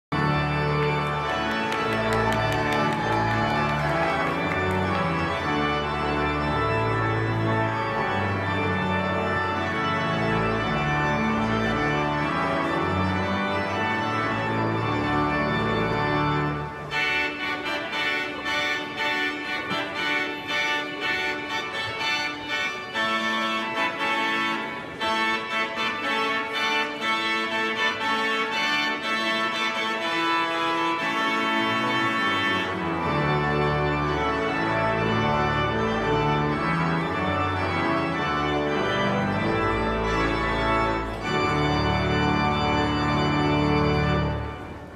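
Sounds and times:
deep organ pedal bass: 0:00.1 - 0:16.8, 0:31.6 - 0:44.8
pipe organ chords: 0:00.1 - 0:44.9.

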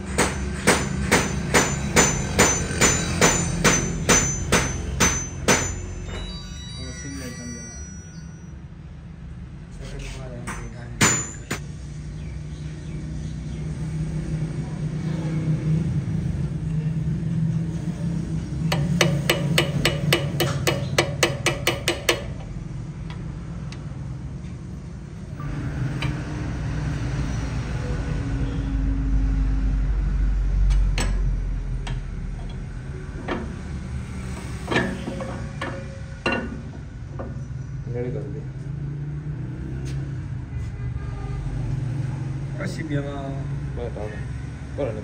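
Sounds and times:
metal tapping: 0:10.5 - 0:11.6, 0:18.7 - 0:23.9, 0:34.6 - 0:37.4.

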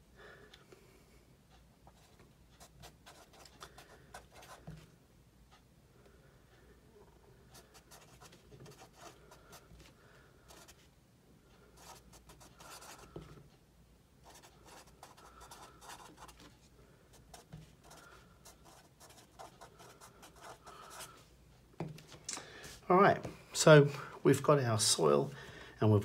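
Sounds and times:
marker writing on paper: 0:01.9 - 0:04.9, 0:07.5 - 0:09.6, 0:11.8 - 0:13.4, 0:14.2 - 0:16.5, 0:17.1 - 0:21.1.

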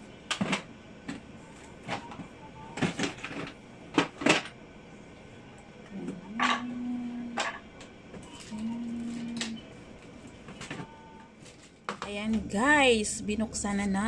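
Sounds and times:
low hum-like tone: 0:04.8 - 0:11.3.

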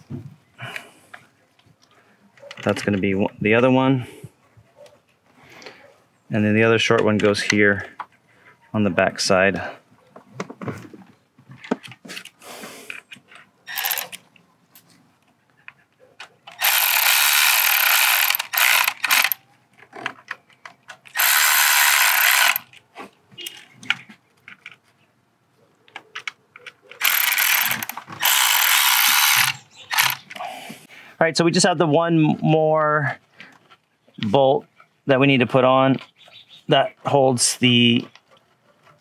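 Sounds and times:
cordless ratchet running: 0:13.7 - 0:14.2, 0:16.5 - 0:19.4, 0:21.1 - 0:22.7, 0:27.0 - 0:30.2.

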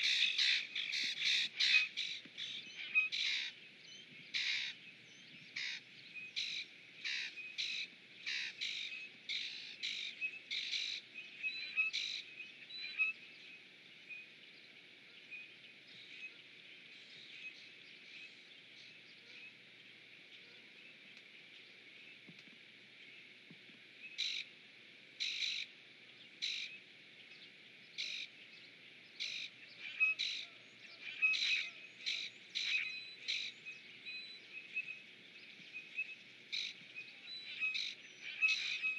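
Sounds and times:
faint steady hiss: 0:00.0 - 0:38.9.

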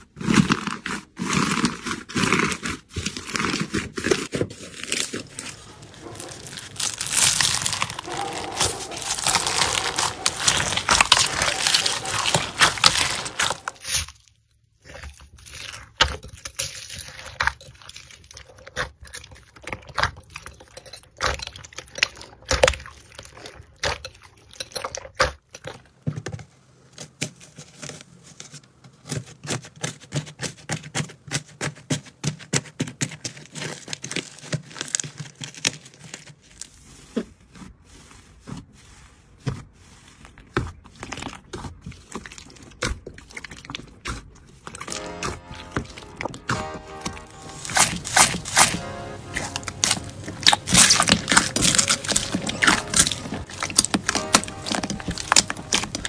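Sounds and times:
dense crackling of slime crust: 0:00.0 - 0:25.4, 0:26.5 - 0:56.0
slime clicks and squishes: 0:04.8 - 0:14.2, 0:41.1 - 0:56.0.

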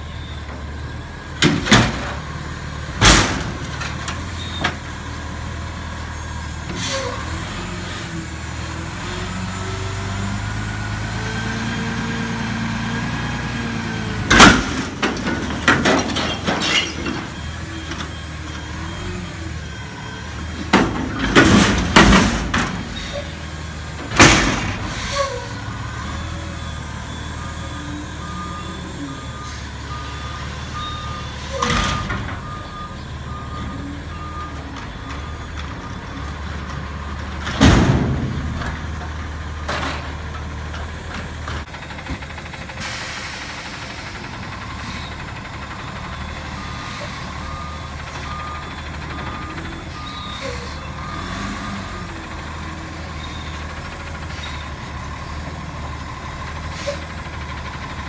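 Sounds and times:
truck engine revving: 0:07.2 - 0:15.7.

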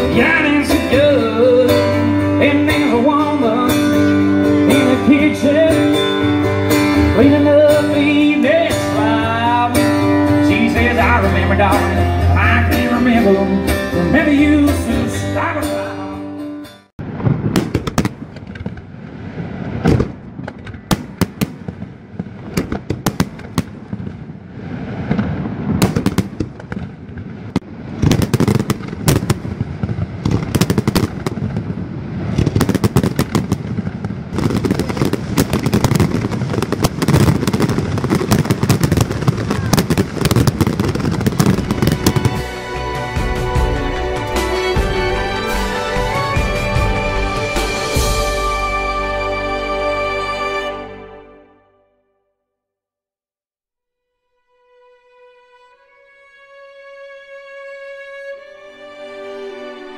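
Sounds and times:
country band music: 0:00.0 - 0:16.9, 0:38.6 - 0:51.6
fireworks bursting and crackling: 0:17.0 - 0:49.0.

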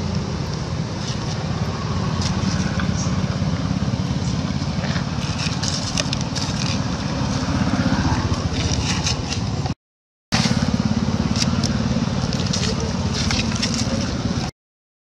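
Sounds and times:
dry leaves crackling: 0:00.1 - 0:09.7, 0:10.4 - 0:14.5
fur scraping microphone: 0:00.8 - 0:09.8.

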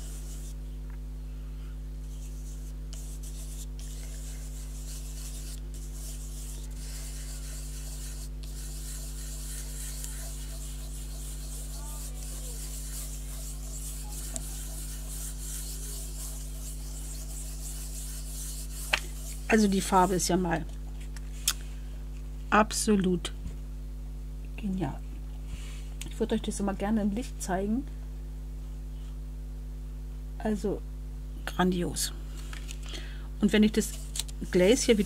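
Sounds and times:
rubbing on paper card: 0:00.0 - 0:00.6, 0:02.0 - 0:20.2.

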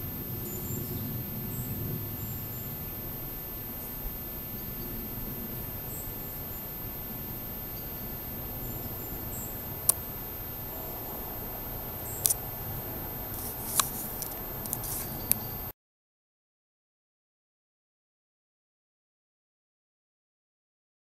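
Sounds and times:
low forest rumble: 0:00.0 - 0:15.7
faint high chirps: 0:00.3 - 0:15.7
sharp clicks: 0:13.3 - 0:15.5.

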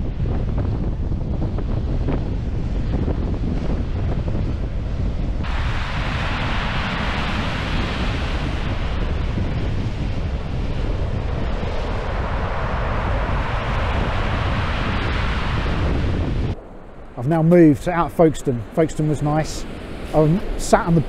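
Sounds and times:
wind buffeting microphone: 0:00.0 - 0:21.0
waves breaking on rocks and shingle: 0:05.4 - 0:16.0.

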